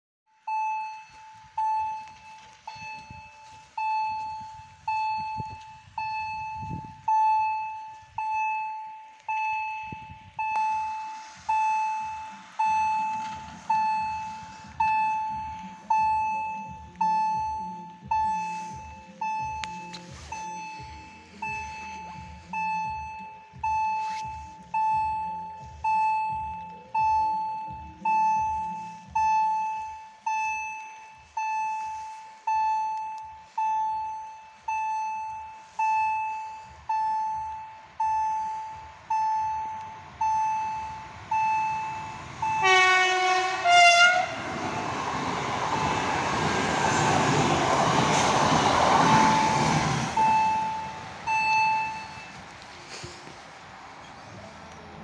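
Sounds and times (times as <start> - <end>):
level crossing bell ringing: 27.1 - 42.8, 50.2 - 52.4.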